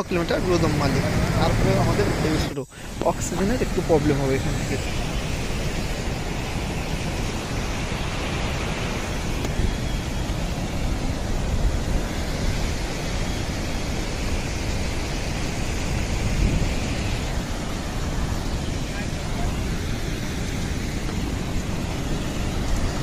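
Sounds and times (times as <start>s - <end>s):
stream and waterfall rushing: 0.0s - 23.0s
wind buffeting microphone: 0.0s - 23.0s.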